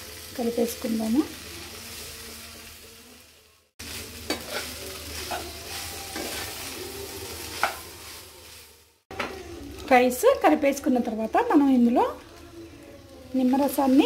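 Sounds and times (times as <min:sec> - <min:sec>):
vegetables sizzling in a pan: 0:00.0 - 0:14.0
spatula scraping a pan: 0:03.9 - 0:06.8, 0:07.5 - 0:08.1.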